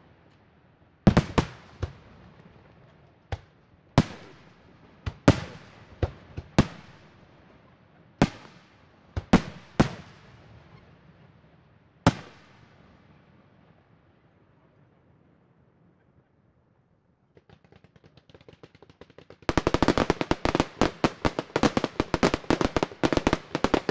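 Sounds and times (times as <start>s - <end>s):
fireworks shells bursting: 19.5s - 23.9s.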